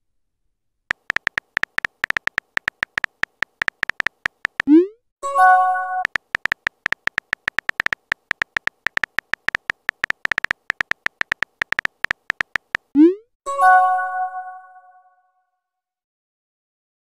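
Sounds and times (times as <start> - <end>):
electronic typing ticks: 0.9 - 4.9, 6.0 - 13.2.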